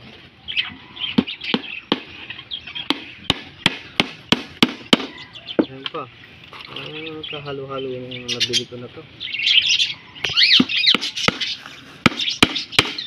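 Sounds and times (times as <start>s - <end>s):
birds chirping: 0.0s - 13.0s
hammer striking nails into wood: 2.9s - 5.1s, 12.1s - 13.0s.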